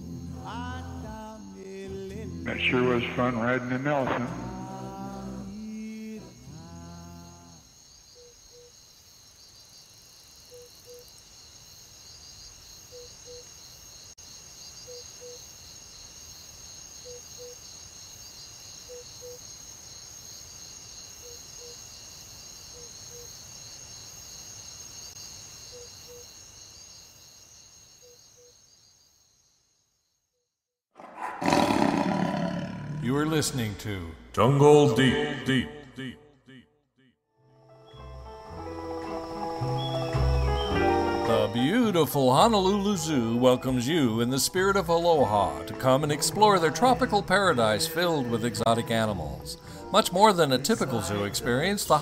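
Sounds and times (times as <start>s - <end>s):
sung chant: 0.0s - 7.7s
crickets and insects trilling: 0.0s - 30.0s, 31.4s - 34.3s, 37.9s - 52.0s.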